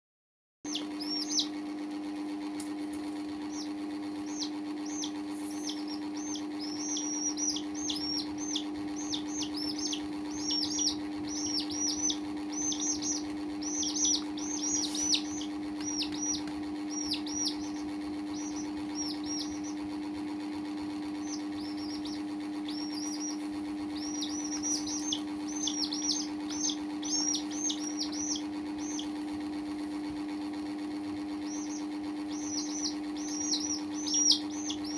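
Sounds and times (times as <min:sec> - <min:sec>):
baby chicks peeping: 0:00.7 - 0:34.9
steady low hum: 0:00.7 - 0:34.9.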